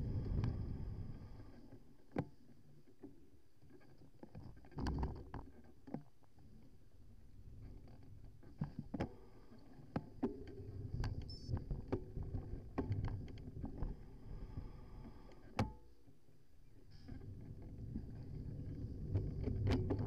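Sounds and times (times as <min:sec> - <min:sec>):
bicycle tyre rumble: 0:00.0 - 0:01.6, 0:17.1 - 0:20.0.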